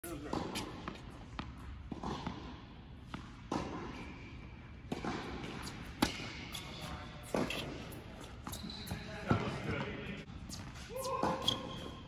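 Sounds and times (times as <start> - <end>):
racket hitting tennis ball: 0.2 - 9.6
tennis ball bouncing on court: 0.2 - 9.9.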